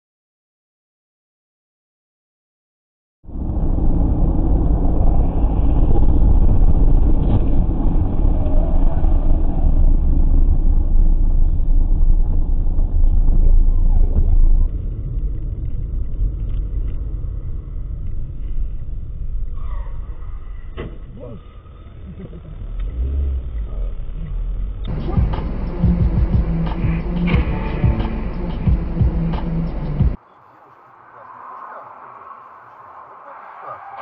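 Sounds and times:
car cabin road and engine rumble: 0:03.3 - 0:30.2.

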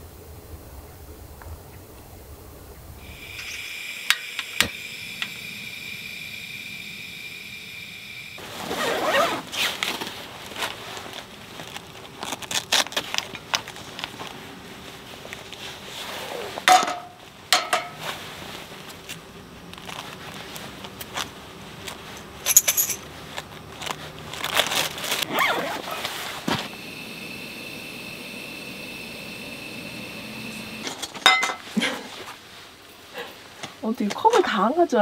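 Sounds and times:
zipper on bag opening: 0:08.4 - 0:10.1, 0:16.0 - 0:16.6, 0:23.5 - 0:26.4
rustling: 0:08.4 - 0:17.4, 0:18.0 - 0:26.8.

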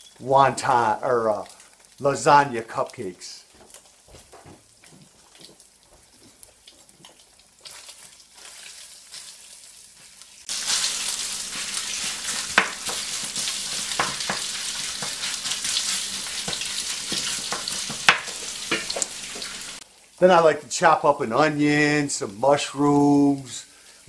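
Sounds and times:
meat sizzling in oil: 0:05.2 - 0:20.2, 0:22.5 - 0:24.0.

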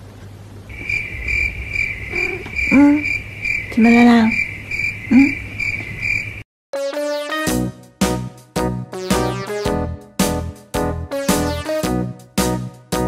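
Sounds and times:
high insect-like chirping: 0:00.7 - 0:06.4
short low vocal calls: 0:02.1 - 0:04.3, 0:05.1 - 0:05.5
piano-like music: 0:06.8 - 0:13.0.

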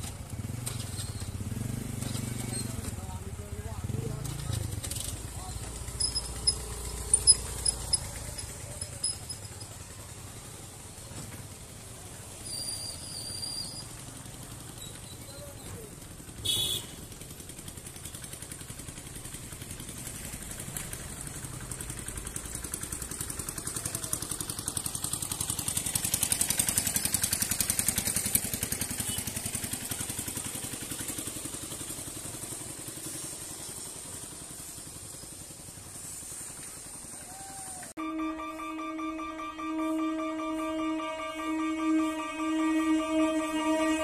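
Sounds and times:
vehicle engines running: 0:00.0 - 0:44.0
short horn beep: 0:38.0 - 0:44.0.

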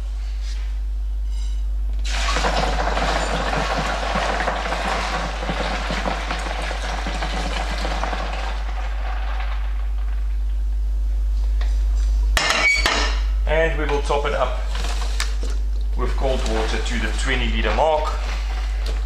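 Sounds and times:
steady low hum: 0:00.0 - 0:19.0
liquid pouring and splashing: 0:02.0 - 0:10.5.

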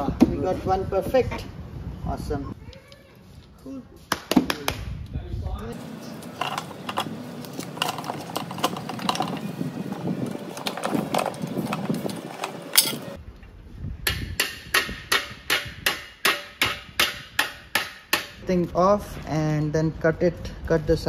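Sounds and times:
small tools clattering: 0:06.1 - 0:13.2.

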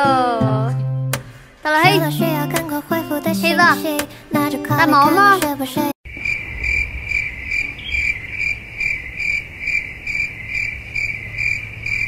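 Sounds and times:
high-pitched chirping: 0:06.2 - 0:12.0.

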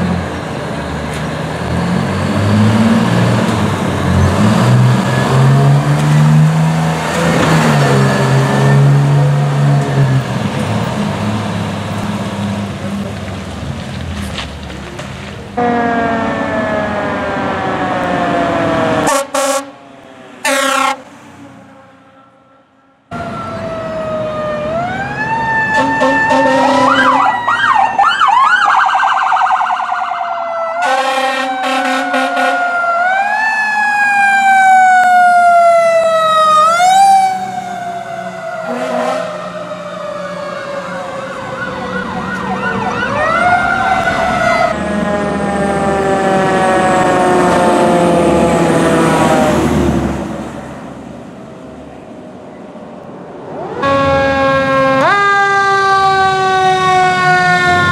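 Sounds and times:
emergency sirens wailing: 0:00.0 - 0:14.0, 0:14.7 - 0:57.9
siren chirps: 0:15.6 - 0:19.7, 0:21.7 - 0:49.8, 0:53.5 - 0:57.9.

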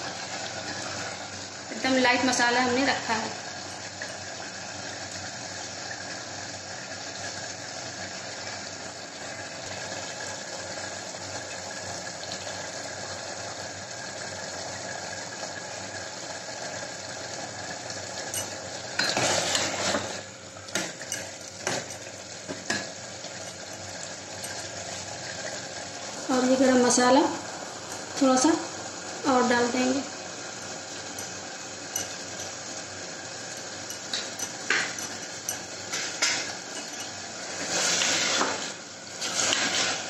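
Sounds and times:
meat sizzling in a pot: 0:00.0 - 0:40.0
ladle clinking against metal: 0:18.2 - 0:19.2, 0:21.0 - 0:22.1, 0:22.7 - 0:24.7, 0:31.1 - 0:32.7, 0:33.5 - 0:37.2
ladle scraping a pot: 0:18.4 - 0:22.0, 0:33.9 - 0:40.0.

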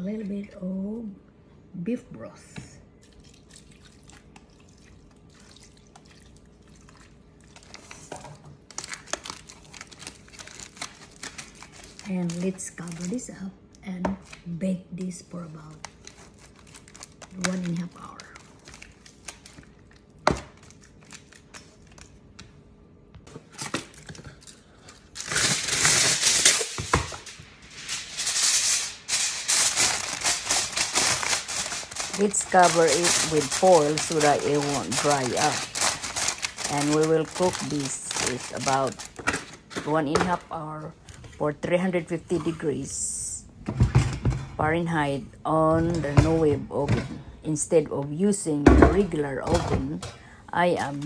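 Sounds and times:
broth trickling and dripping: 0:03.0 - 0:07.8
aluminium foil crinkling: 0:05.4 - 0:13.5, 0:15.2 - 0:22.5, 0:23.4 - 0:40.5.

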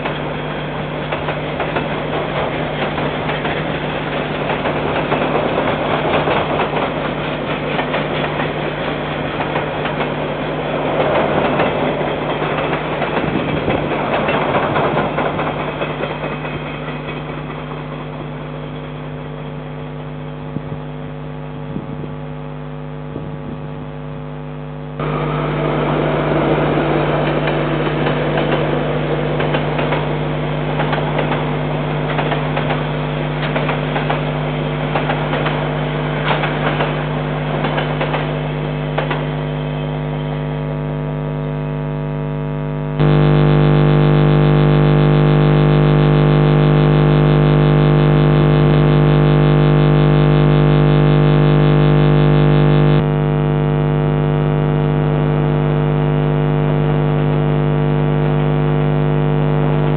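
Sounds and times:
freight train passing: 0:00.0 - 0:19.1, 0:25.0 - 0:40.3.

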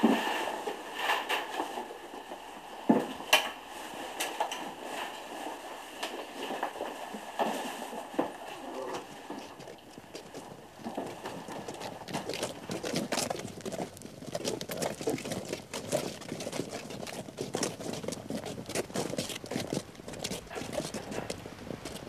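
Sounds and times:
hurried footsteps in boots: 0:09.3 - 0:22.0.

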